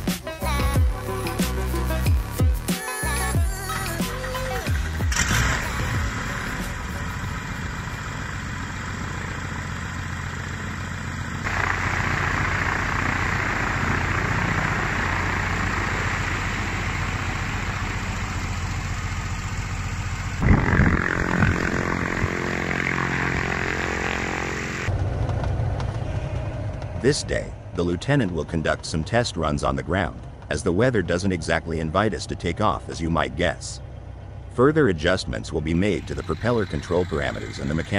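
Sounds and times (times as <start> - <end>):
aircraft piston engine running: 3.0 - 27.9, 35.0 - 37.9
low wind buffeting bursts: 20.3 - 32.8.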